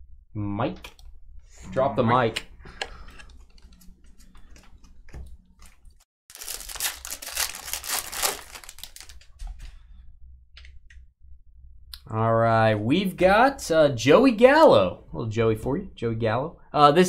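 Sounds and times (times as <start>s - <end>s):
foil wrapper crinkling: 5.6s - 9.4s.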